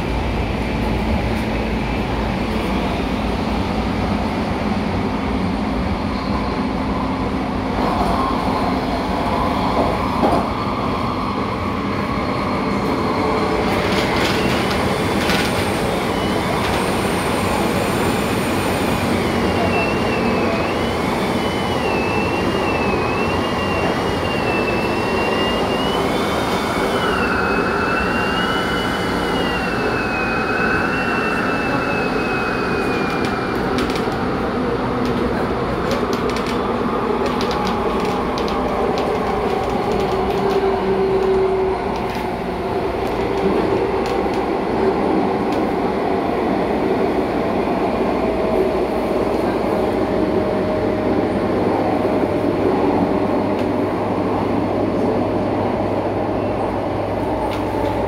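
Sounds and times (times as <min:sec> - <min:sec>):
train rumble inside passenger car: 0:00.0 - 0:27.1, 0:31.6 - 0:58.0
high wavering squeal: 0:19.7 - 0:33.2.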